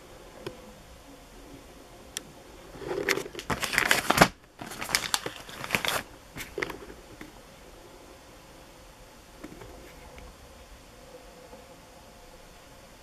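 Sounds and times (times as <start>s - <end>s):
plastic wrapping crinkling: 2.8s - 6.9s.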